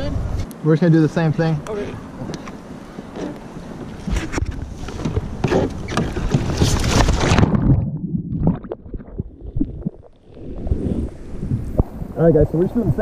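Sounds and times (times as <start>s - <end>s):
water splashing around a kayak: 2.6s - 12.9s.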